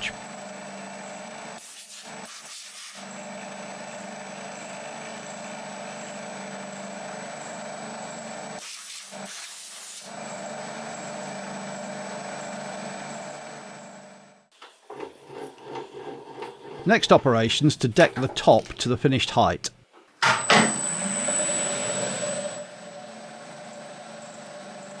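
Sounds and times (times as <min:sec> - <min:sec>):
milling machine spindle humming: 0:10.1 - 0:18.6, 0:20.3 - 0:25.0.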